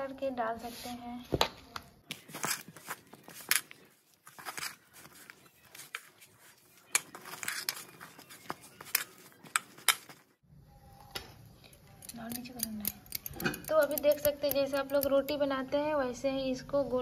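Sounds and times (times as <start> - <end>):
hand mixing dough in metal bowl: 2.0 - 10.4.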